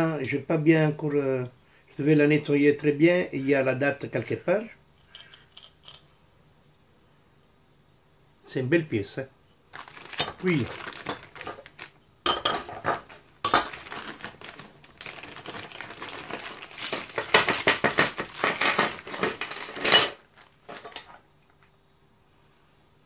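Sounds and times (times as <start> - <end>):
plastic bags crinkling: 9.7 - 21.6
metal medals clinking: 16.6 - 20.2.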